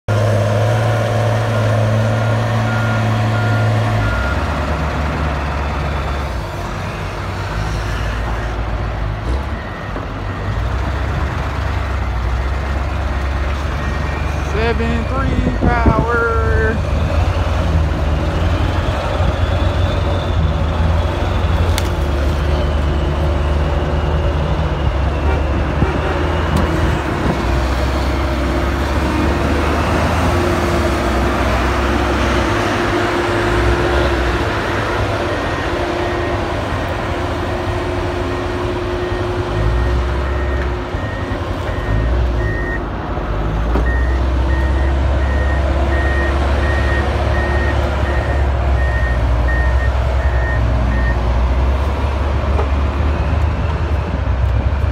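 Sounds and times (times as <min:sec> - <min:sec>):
heavy diesel machinery rumbling: 0:00.1 - 0:54.9
reversing alarm beeping: 0:02.0 - 0:11.5, 0:38.9 - 0:42.8, 0:43.8 - 0:51.2.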